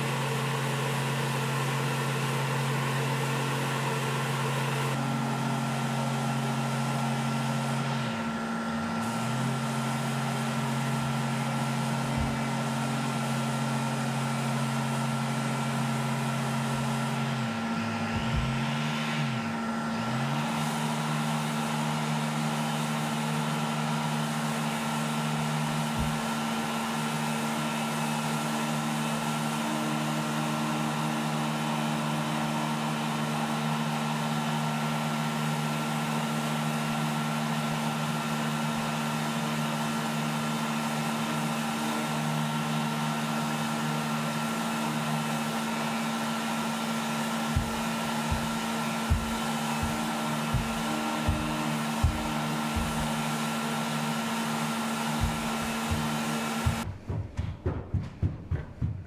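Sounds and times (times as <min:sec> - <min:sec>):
orbital sander sanding wood: 0:00.0 - 0:59.0
dull knocks: 0:47.6 - 0:53.2, 0:55.2 - 0:59.0.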